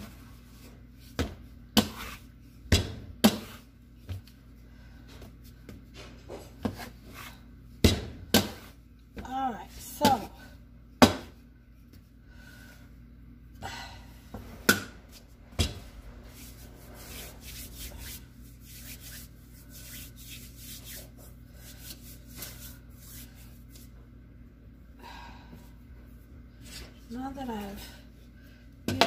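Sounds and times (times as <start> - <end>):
hands rubbing flour off: 16.2 - 24.0.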